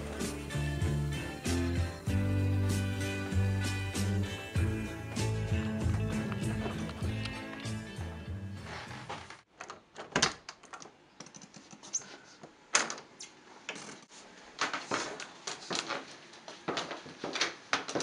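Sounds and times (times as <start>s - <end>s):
music: 0.0s - 9.4s
footsteps in sandals on stairs: 4.6s - 9.4s, 14.6s - 18.0s.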